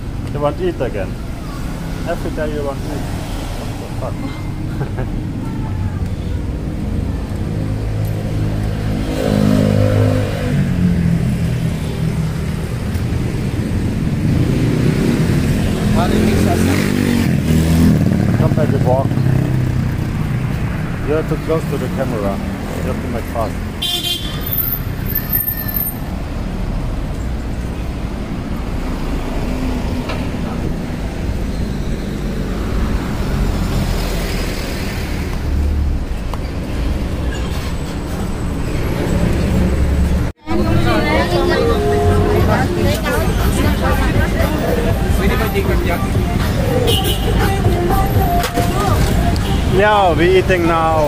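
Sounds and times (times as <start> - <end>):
road rumble: 0.0 - 51.0
vehicle engines passing: 0.0 - 51.0.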